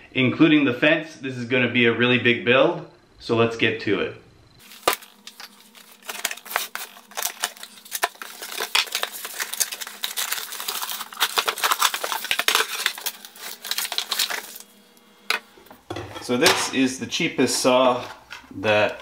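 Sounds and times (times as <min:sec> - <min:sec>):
packaging clicks and crackles: 0:04.6 - 0:14.8.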